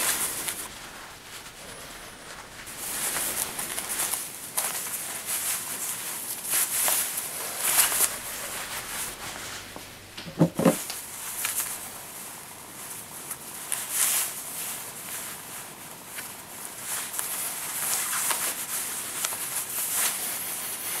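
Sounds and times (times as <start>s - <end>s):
necktie fabric rustling: 0.0s - 15.3s
dull thumps: 9.7s - 11.0s.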